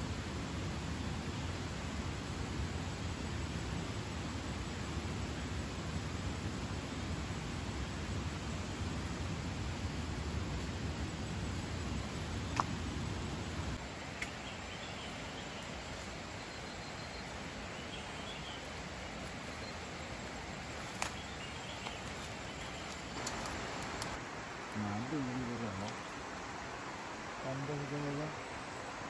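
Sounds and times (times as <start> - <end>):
steady hiss: 0.0 - 29.0
faint bird chirps: 13.4 - 24.1
footsteps through undergrowth: 19.0 - 24.2
sharp clicks: 22.9 - 24.2.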